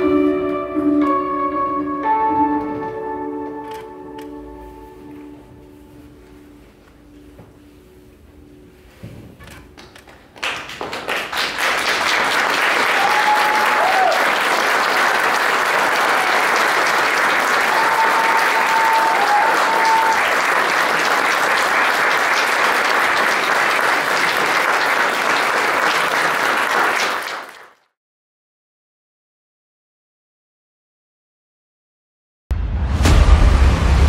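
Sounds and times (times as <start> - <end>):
audience applauding: 9.8 - 27.8.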